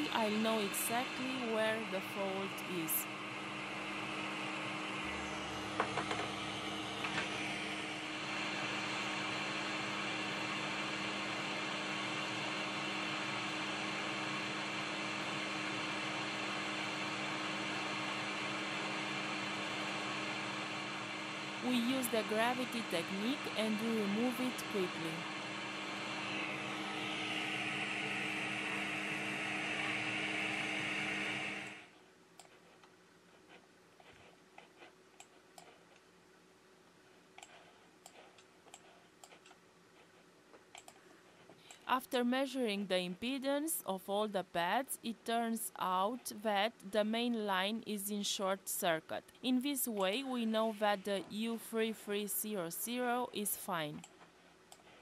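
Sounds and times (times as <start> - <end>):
low fan hum: 0.0 - 32.3, 41.2 - 55.0
computer mouse clicks: 32.4 - 32.6, 35.2 - 36.0, 37.4 - 39.6, 40.7 - 41.0.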